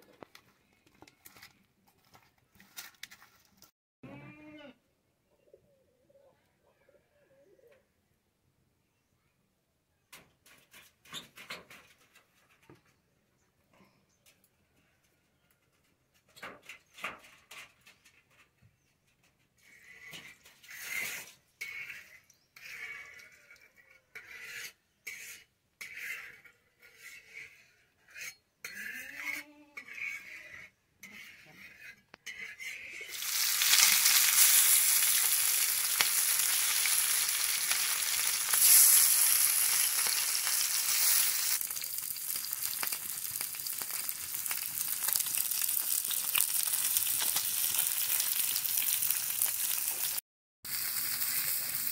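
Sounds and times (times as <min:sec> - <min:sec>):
metal spatula scraping pan: 0:19.6 - 0:41.7
fish sizzling in hot oil: 0:33.1 - 0:51.9.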